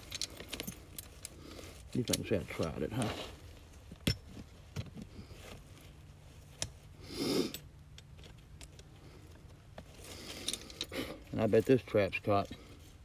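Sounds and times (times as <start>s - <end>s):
metal trap and chain clinking: 0.0s - 3.1s, 10.0s - 12.6s.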